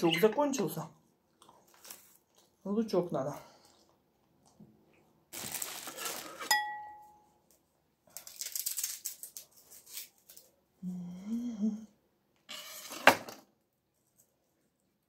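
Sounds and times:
crinkling rustle: 0:05.3 - 0:06.5, 0:08.1 - 0:10.5.

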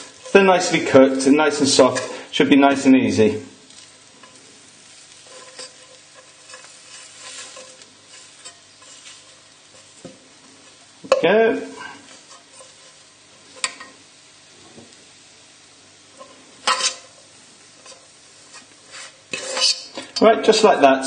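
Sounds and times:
fork squashing potatoes in pan: 0:00.0 - 0:02.2, 0:03.6 - 0:14.0, 0:16.1 - 0:20.3
steady sizzling: 0:00.0 - 0:21.0.

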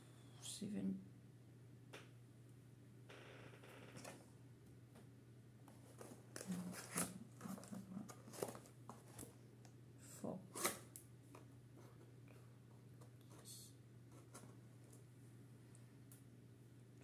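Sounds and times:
paper and packaging rustling: 0:05.8 - 0:09.4.

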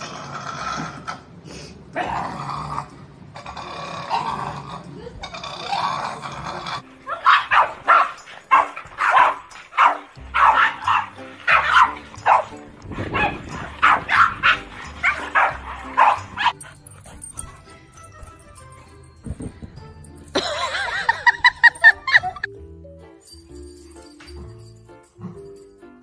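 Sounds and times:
background music: 0:00.0 - 0:26.0
small dogs barking rapidly: 0:07.0 - 0:16.6.

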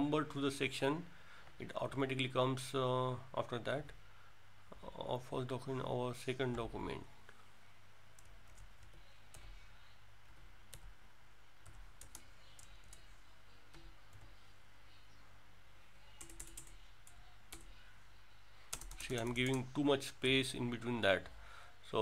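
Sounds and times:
keyboard typing: 0:11.6 - 0:13.1, 0:16.2 - 0:17.8, 0:18.7 - 0:19.7.

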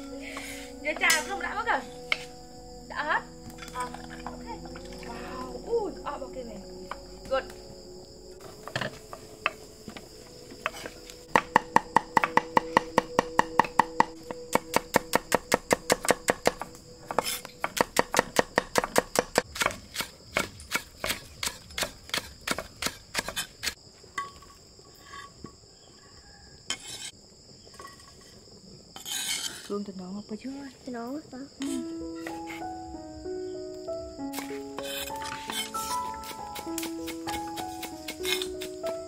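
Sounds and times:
crickets chirring: 0:00.0 - 0:39.0
knife chopping on wooden board: 0:11.3 - 0:23.5, 0:34.4 - 0:38.8.

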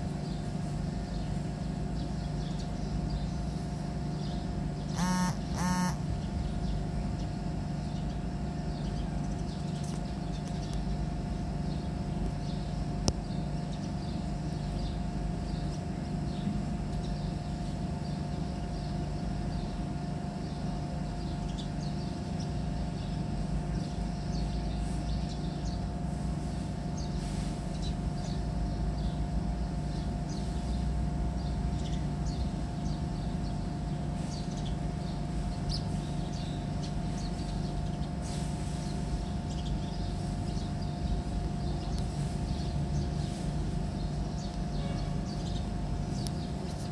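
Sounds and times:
constant hum-like tone: 0:00.0 - 0:46.9
short pitched sounds: 0:05.0 - 0:06.0.

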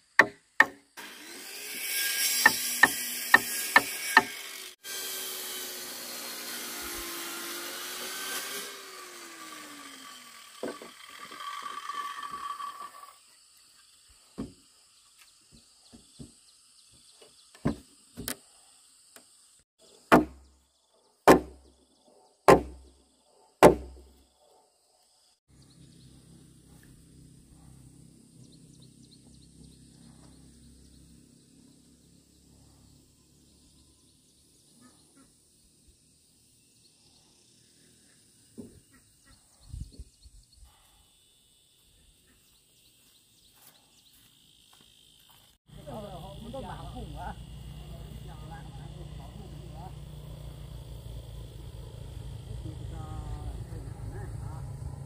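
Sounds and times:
woodworking power tool whine: 0:00.9 - 0:18.4, 0:40.7 - 0:55.0.

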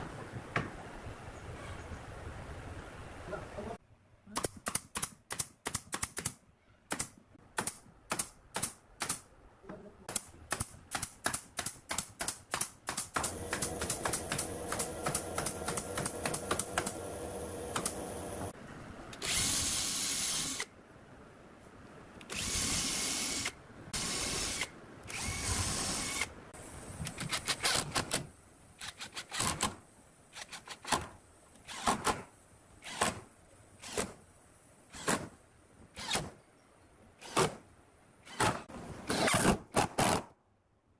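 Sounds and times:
nail gun firing into wood: 0:10.1 - 0:17.0, 0:32.9 - 0:33.2, 0:35.0 - 0:35.3
drill boring into wood: 0:19.2 - 0:20.6, 0:22.3 - 0:26.3.

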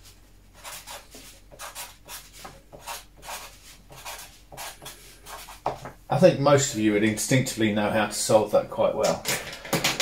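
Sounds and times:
marker writing on paper: 0:00.6 - 0:05.9.

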